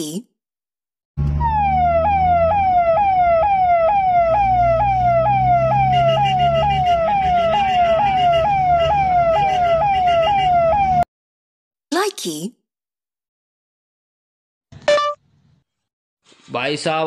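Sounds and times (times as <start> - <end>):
siren yelp: 1.2 - 11.1.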